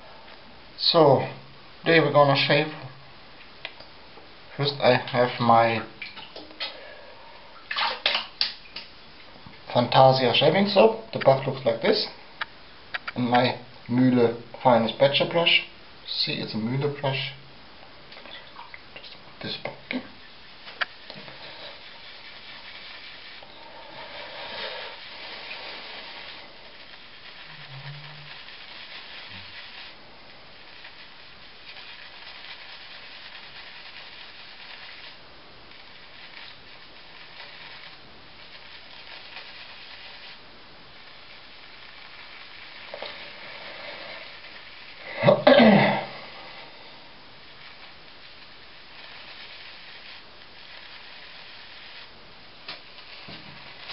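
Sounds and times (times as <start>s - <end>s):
shaving brush swishing on soap: 21.2s - 23.5s, 24.3s - 40.4s.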